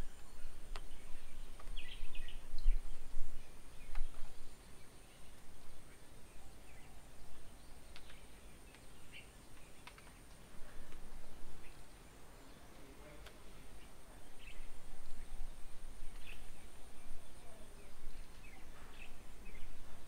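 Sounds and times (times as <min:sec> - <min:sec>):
wind rumble on microphone: 0:00.0 - 0:06.2, 0:14.0 - 0:20.0
bird chirps: 0:00.0 - 0:20.0
sharp clicks: 0:09.8 - 0:11.0.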